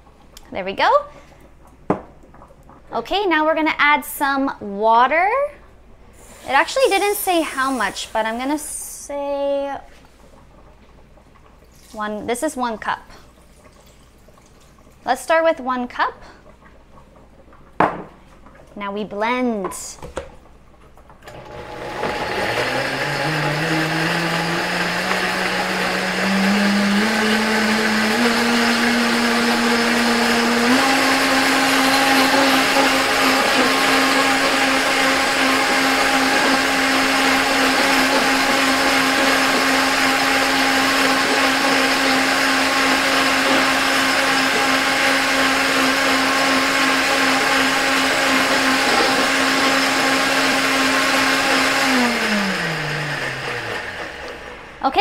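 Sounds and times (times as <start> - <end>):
blender motor running: 21.3 - 54.8.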